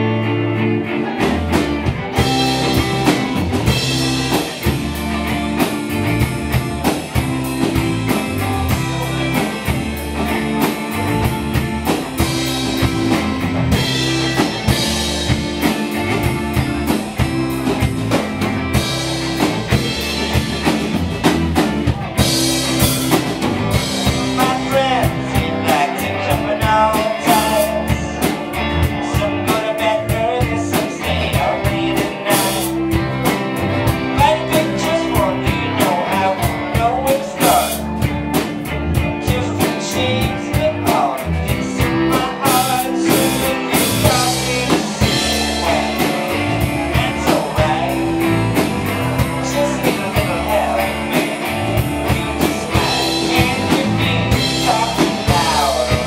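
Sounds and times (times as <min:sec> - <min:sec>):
live rock band playing: 0:00.0 - 0:56.0.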